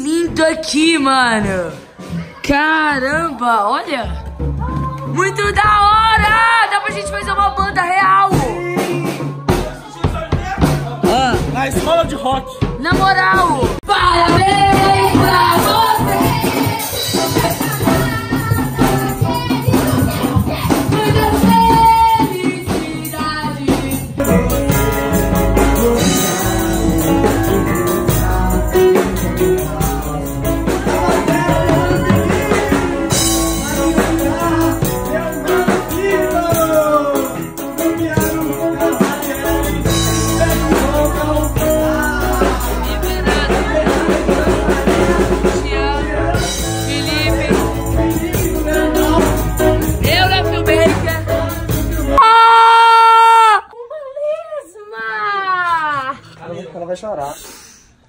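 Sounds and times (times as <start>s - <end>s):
drum kit: 0.0s - 3.4s, 4.0s - 53.4s
voices singing into microphones: 12.2s - 54.1s
electric guitar: 13.9s - 52.5s
keyboard: 14.0s - 52.2s
tambourine shaking: 14.8s - 45.4s, 46.6s - 52.2s.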